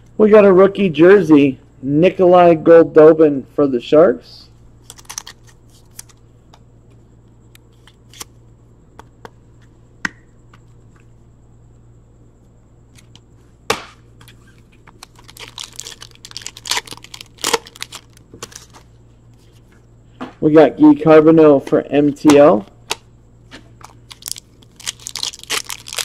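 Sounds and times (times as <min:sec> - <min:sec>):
wrapper tearing and crinkling: 0:04.9 - 0:06.1, 0:14.9 - 0:18.8, 0:23.8 - 0:26.0.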